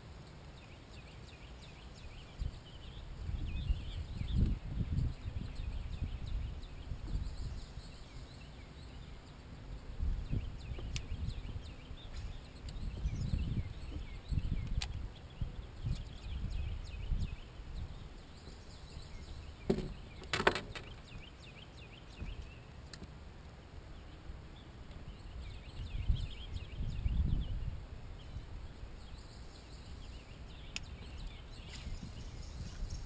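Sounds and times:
birds chirping: 0.0s - 33.0s
knocks on boat deck: 19.7s - 20.8s.

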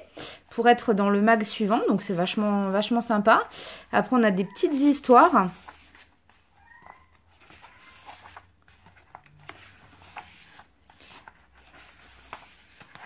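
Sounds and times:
paper pages turning: 5.2s - 13.0s.

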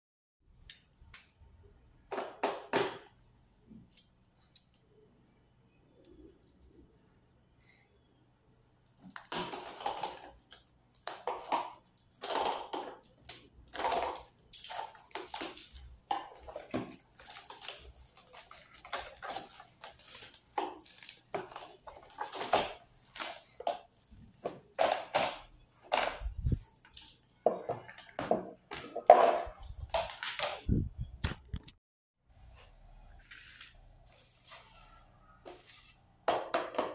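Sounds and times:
plastic wrap crinkling: 8.9s - 25.0s.

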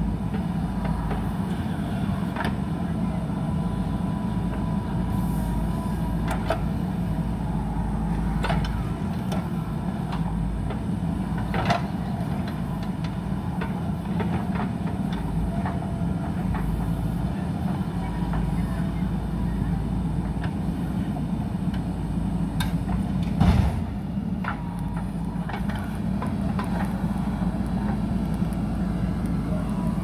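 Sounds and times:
backhoe diesel engine running: 0.0s - 30.0s.

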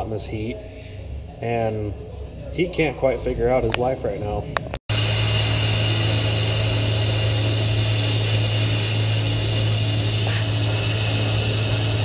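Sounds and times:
milling machine low hum: 4.4s - 12.0s
compressed air hissing: 4.9s - 12.0s.

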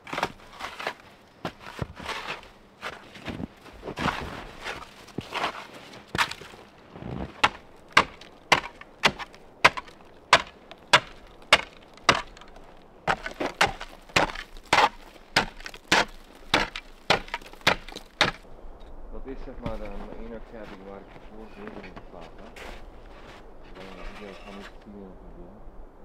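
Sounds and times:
snow shovel scraping snow: 0.0s - 10.4s, 19.7s - 24.8s.

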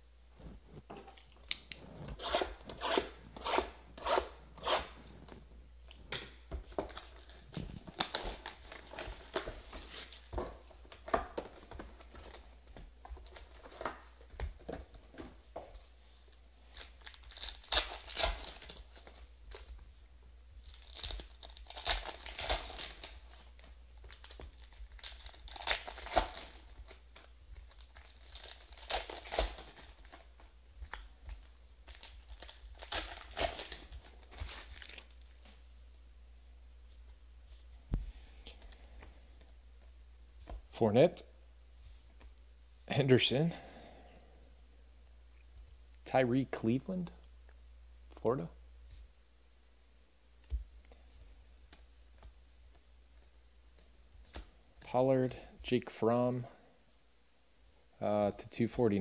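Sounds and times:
wrapper rustling: 6.6s - 14.3s, 16.6s - 19.7s, 20.6s - 35.6s
foil packs ripping: 6.9s - 10.3s, 16.7s - 19.2s, 20.6s - 30.3s, 31.3s - 35.2s.

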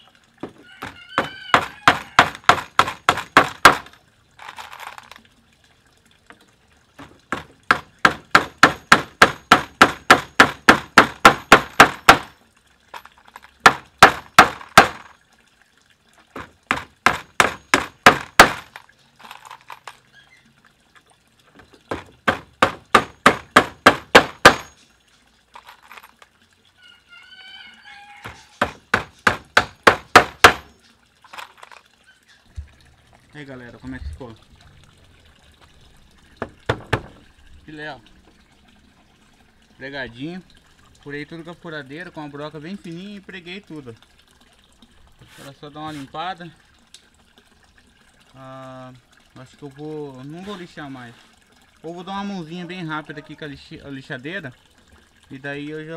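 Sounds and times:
hammer striking nails into wood: 1.2s - 3.9s, 7.3s - 12.3s, 13.7s - 15.0s, 16.7s - 18.7s, 21.9s - 24.7s, 28.6s - 30.7s.

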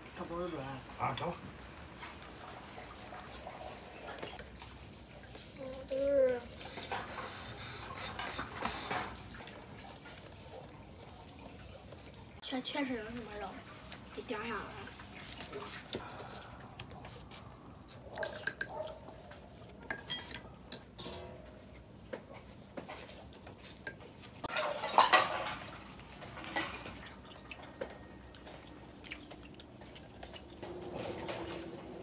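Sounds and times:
tableware clinking: 17.9s - 18.8s, 19.8s - 21.6s, 23.7s - 25.8s.

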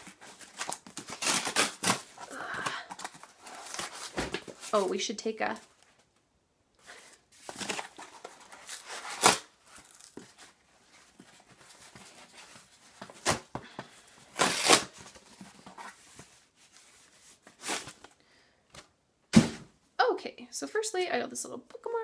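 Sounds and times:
cardboard mailer ripping: 0.0s - 2.3s, 7.4s - 10.3s, 14.4s - 15.1s
rustling and crinkling: 0.0s - 6.2s, 6.8s - 14.0s, 14.6s - 18.9s.

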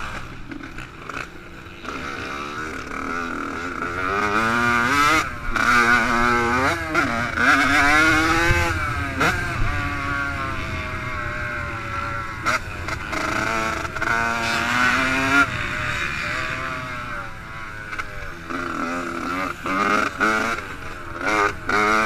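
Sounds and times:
two-stroke motorcycle engine revving: 0.0s - 22.0s.

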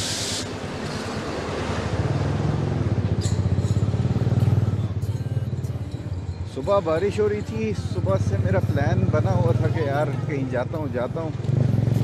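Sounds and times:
brief hiss: 0.0s - 0.5s.

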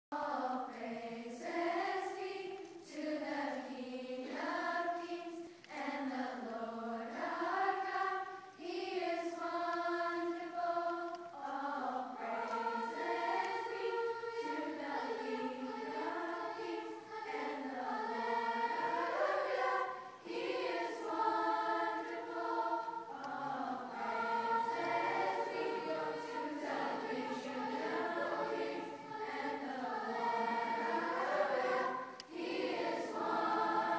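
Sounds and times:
children's choir singing: 0.1s - 33.9s.

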